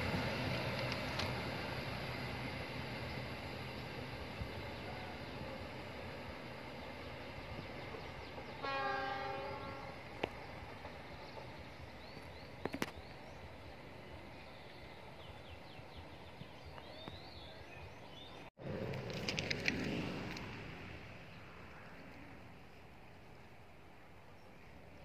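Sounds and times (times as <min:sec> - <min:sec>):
train running on track: 0:00.0 - 0:25.0
train horn blast: 0:08.6 - 0:10.0.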